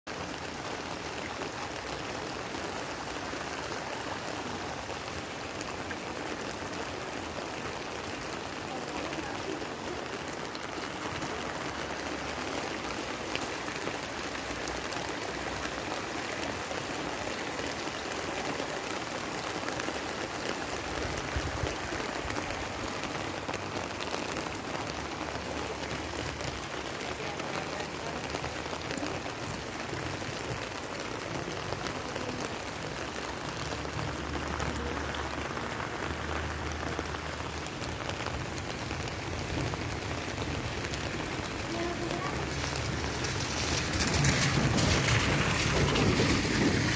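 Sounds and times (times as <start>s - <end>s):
steady rain falling: 0.0s - 46.9s.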